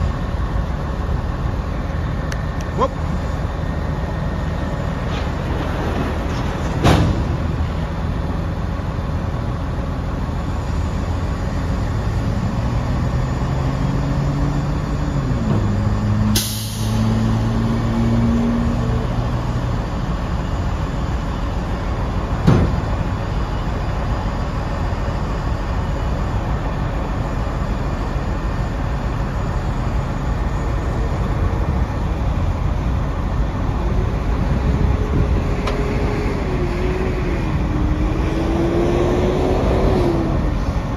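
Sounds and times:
diesel truck engine running: 0.0 - 40.9
air hiss burst: 16.4 - 17.1.

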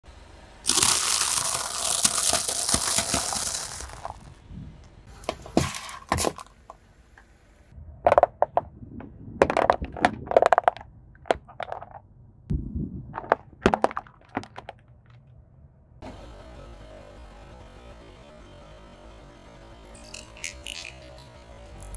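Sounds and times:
noodle blocks crunching under tyre: 0.7 - 4.4, 5.2 - 6.8, 9.4 - 12.0, 13.2 - 15.3
plastic containers cracking: 0.7 - 4.4, 5.3 - 6.8, 9.4 - 12.0, 13.2 - 15.3.

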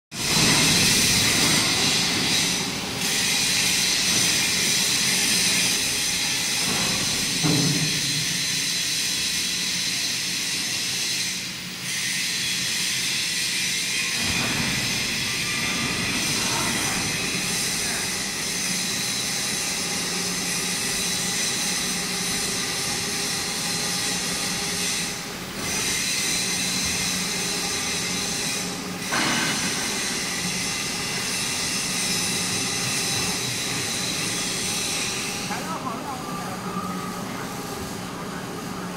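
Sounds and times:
machinery whining tones: 13.9 - 38.9.

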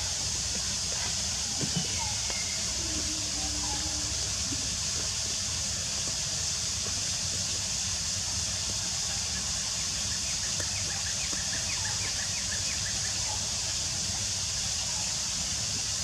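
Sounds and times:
constant high hiss: 0.0 - 16.0.

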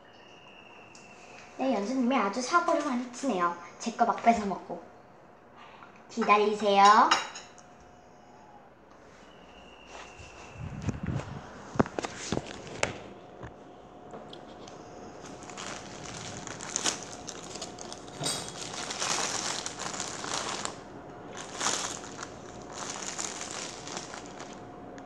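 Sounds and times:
fabric rustling on phone: 9.9 - 13.2, 14.4 - 24.6.

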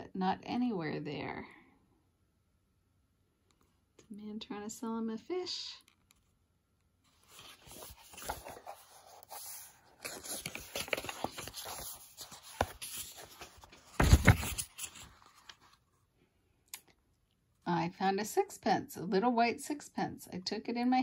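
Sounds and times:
paper page rustling: 7.1 - 15.9.

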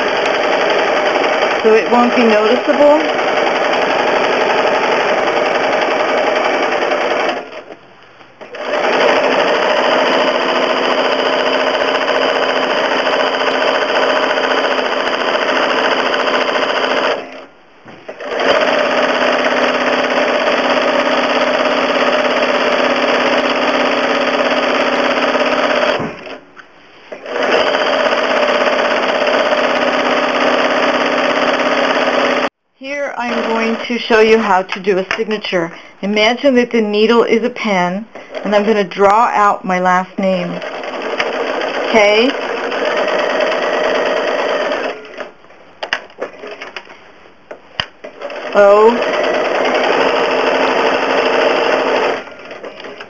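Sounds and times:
sewing machine running: 0.0 - 7.8, 8.4 - 17.5, 18.1 - 26.4, 27.1 - 32.5, 33.2 - 33.8, 40.5 - 45.3, 48.0 - 53.0.

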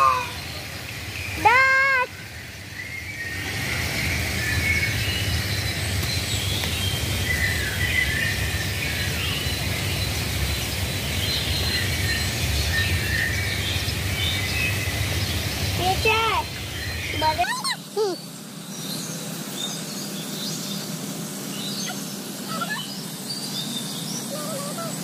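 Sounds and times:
low background hum: 0.0 - 25.0
small birds chirping: 0.0 - 25.0
peafowl call: 21.8 - 23.0.

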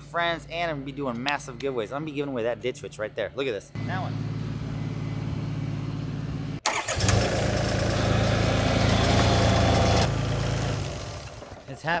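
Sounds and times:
loader engine running: 3.8 - 11.6.

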